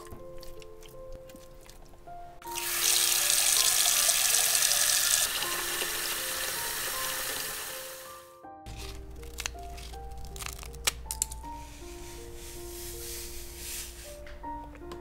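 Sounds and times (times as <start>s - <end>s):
background music: 0.0s - 15.0s
tap water running into a pot: 2.4s - 8.0s.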